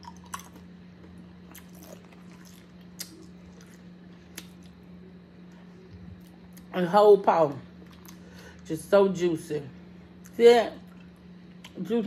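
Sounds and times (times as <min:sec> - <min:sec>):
wet chewing: 0:00.0 - 0:04.8
steady low hum: 0:00.0 - 0:12.0
lip smacks: 0:01.5 - 0:04.8.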